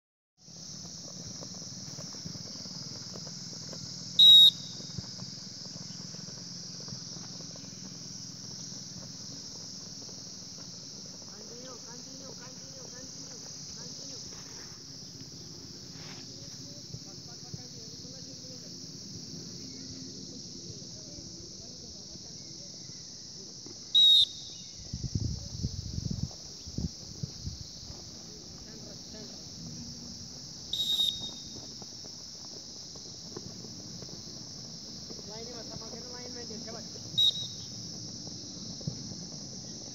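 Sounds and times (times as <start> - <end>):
high-pitched insect chorus: 0.4 - 39.9
loud whistle blast: 4.2 - 4.8, 23.9 - 24.6, 30.7 - 31.6, 37.2 - 37.7.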